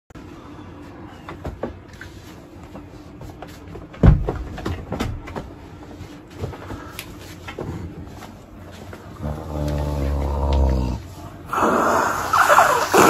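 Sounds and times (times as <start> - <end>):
knocks and rustles: 1.2 - 9.1.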